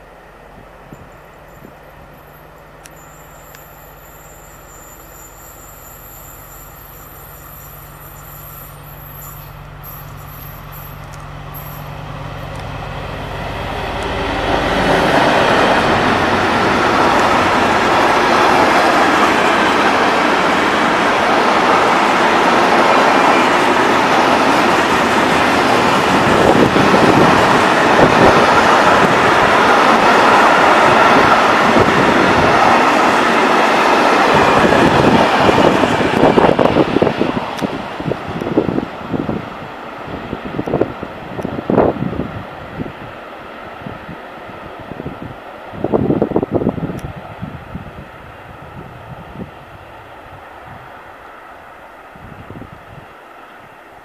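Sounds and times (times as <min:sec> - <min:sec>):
diesel locomotive engine drone: 0:00.0 - 0:54.0
train wagons rattling: 0:00.8 - 0:12.8.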